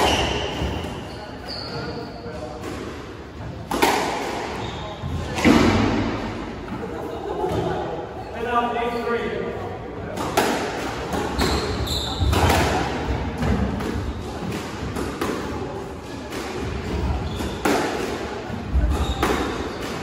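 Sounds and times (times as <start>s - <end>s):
squash ball hitting racquet: 2.4s - 6.6s, 10.1s - 20.0s.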